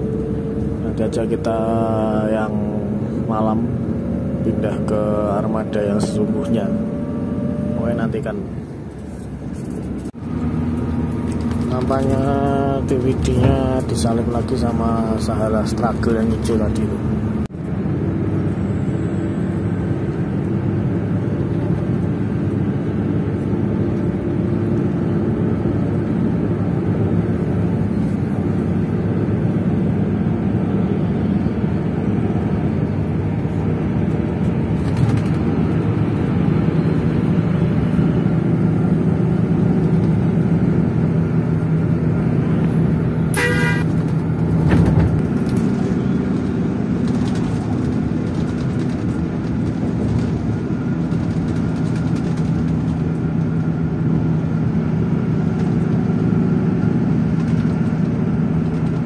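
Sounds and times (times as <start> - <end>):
bus engine and road noise: 0.0 - 59.0
horn: 43.3 - 43.8.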